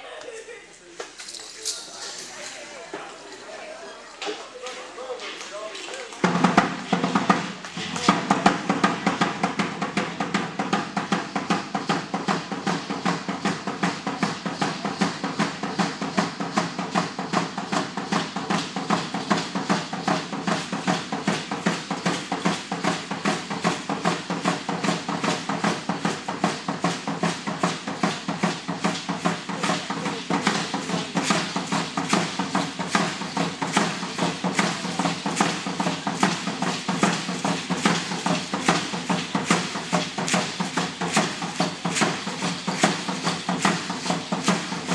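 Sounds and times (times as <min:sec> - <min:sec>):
ankle rattles: 0:01.1 - 0:03.4
fast drumbeat: 0:06.2 - 0:44.9.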